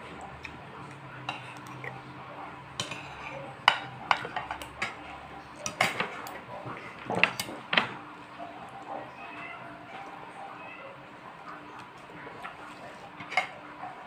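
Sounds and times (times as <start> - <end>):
cutlery clinking on a plate: 2.8 - 5.0, 5.6 - 6.4, 13.2 - 13.6.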